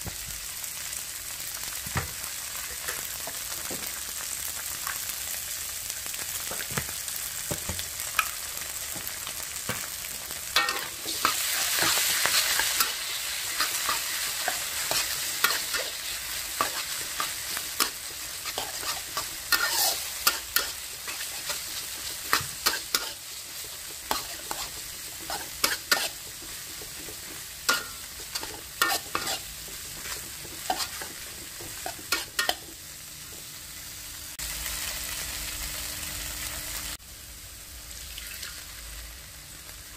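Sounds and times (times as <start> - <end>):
vegetables sizzling in wok: 0.0 - 39.9
metal spatula scraping wok: 10.6 - 32.8.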